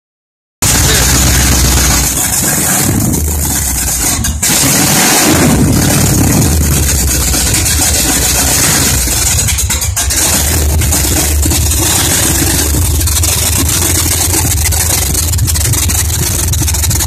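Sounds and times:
car engine idling: 0.6s - 17.0s.

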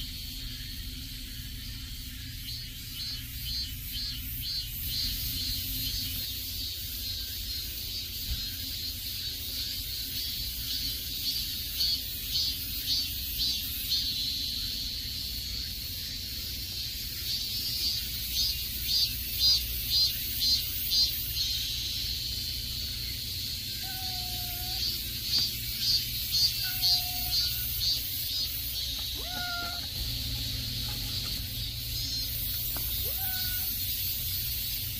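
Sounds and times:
insects droning: 0.0s - 34.9s
short pitched calls: 23.6s - 34.3s.

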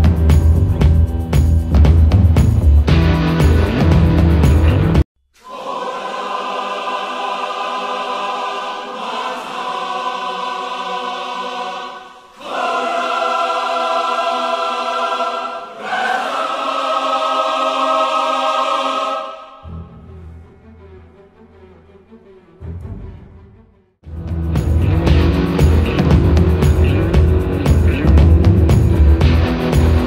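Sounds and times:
beat-heavy music: 0.0s - 5.0s, 24.1s - 30.0s
sustained choir-like chords: 5.4s - 30.0s.

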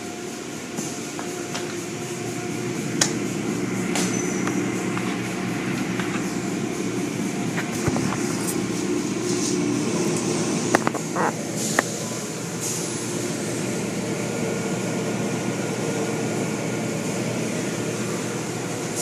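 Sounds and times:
wash machinery hum: 0.0s - 19.0s.

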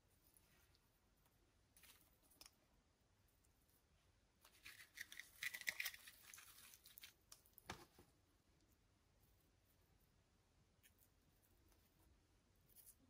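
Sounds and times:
crackling rustling handling noise: 3.4s - 9.7s.

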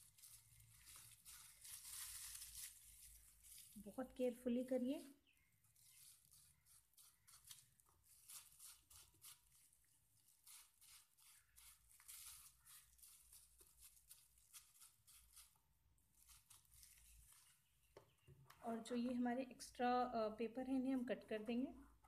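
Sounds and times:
plastic bag crinkling and rustling: 0.0s - 5.0s.

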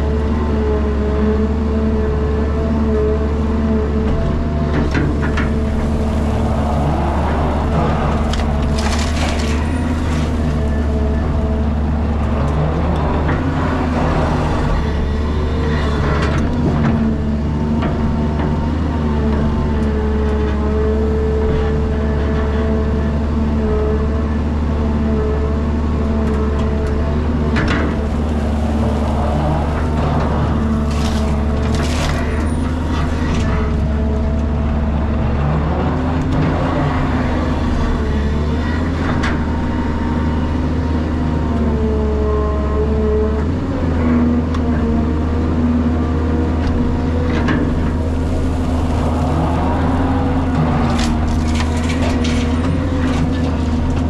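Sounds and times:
excavator diesel engine: 0.0s - 54.0s
bucket scraping and knocking: 8.4s - 10.5s
soil pouring into truck bed: 8.4s - 10.6s.

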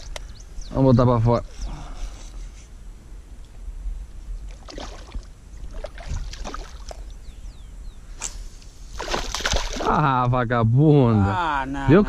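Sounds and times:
steady low rumble: 0.0s - 6.4s
fish splashing at water surface: 9.0s - 10.0s.

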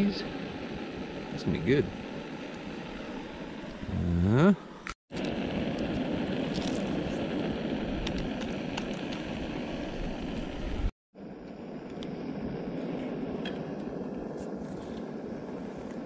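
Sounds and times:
steady rushing noise: 0.0s - 3.9s.

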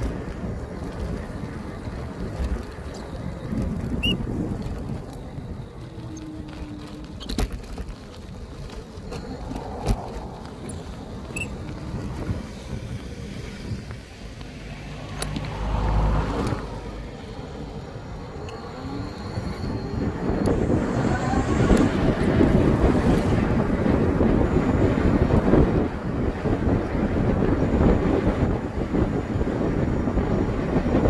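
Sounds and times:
bike tyre and frame rattle: 0.0s - 14.6s
wind on microphone: 0.0s - 31.0s.

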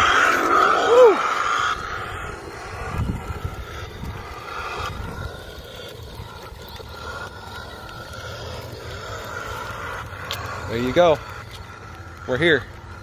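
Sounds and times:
low rumble: 0.0s - 13.0s
toy electric motor whining: 0.0s - 13.0s.

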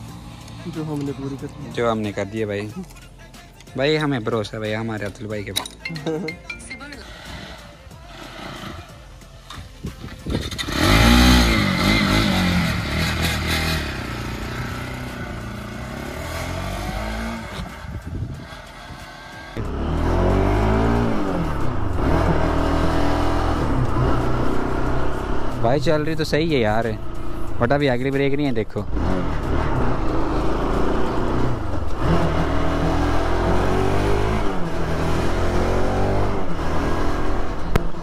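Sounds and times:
motorcycle engine accelerating: 10.0s - 38.0s.

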